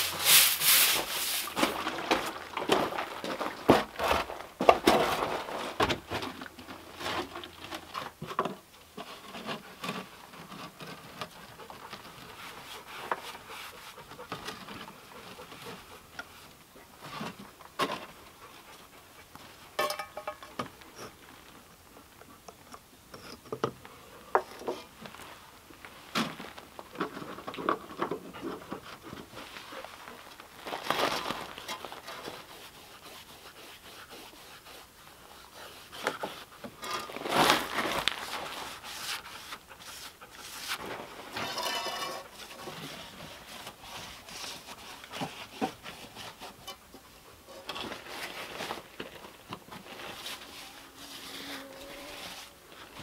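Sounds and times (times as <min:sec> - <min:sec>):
brush rubbing on wood: 0:00.0 - 0:01.8, 0:09.7 - 0:16.4, 0:32.0 - 0:36.7, 0:38.2 - 0:40.9, 0:50.0 - 0:52.9.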